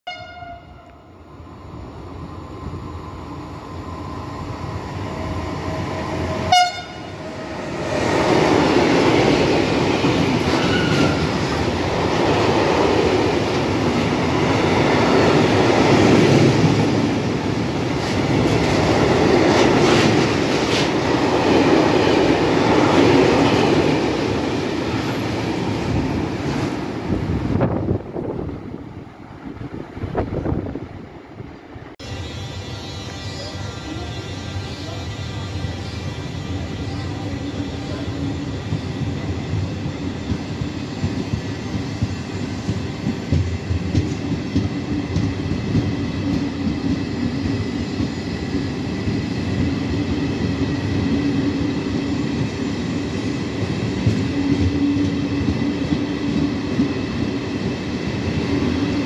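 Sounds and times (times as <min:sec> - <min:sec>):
train horn blast: 0:00.0 - 0:01.0, 0:06.5 - 0:07.2, 0:32.0 - 0:37.3
freight train rumble: 0:00.1 - 0:59.0.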